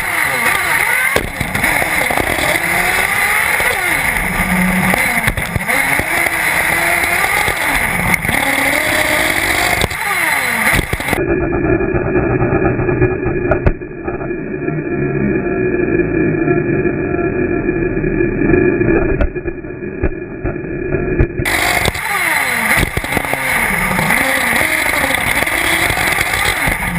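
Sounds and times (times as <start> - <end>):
tyre noise: 0.0 - 11.2, 21.1 - 26.9
model car nitro engine revving: 0.0 - 13.5, 21.4 - 26.9
dull muffled sound: 0.0 - 26.9.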